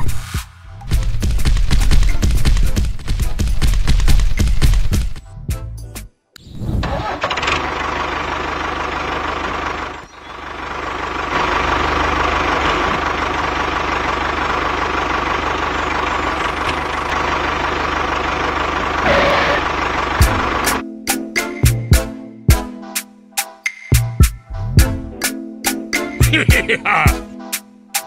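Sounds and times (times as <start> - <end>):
engine running: 7.2 - 20.8.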